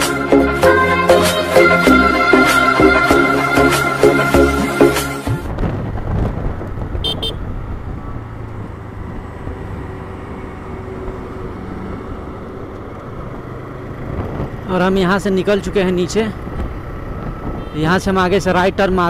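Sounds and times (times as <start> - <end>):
road and wind noise: 0.0 - 19.0
motorcycle engine running: 5.4 - 19.0
horn beeps: 7.0 - 7.4, 17.6 - 18.0.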